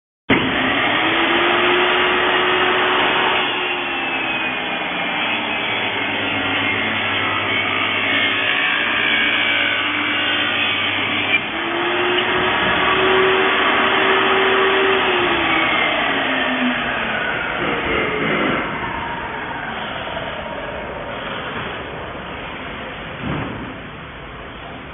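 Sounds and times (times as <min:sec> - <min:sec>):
table saw ripping wood: 0:00.3 - 0:18.8.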